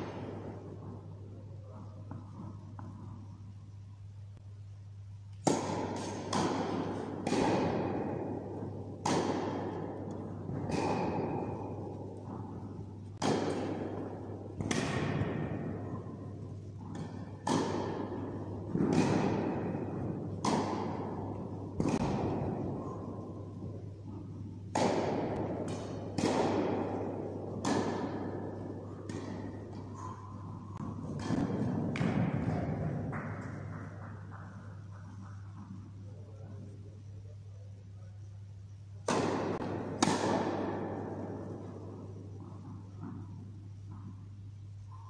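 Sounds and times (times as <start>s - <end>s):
tennis balls bouncing: 0.0s - 3.8s, 5.3s - 36.4s, 39.0s - 44.4s
tennis balls struck by rackets: 0.0s - 3.8s, 5.3s - 36.4s, 39.0s - 44.4s.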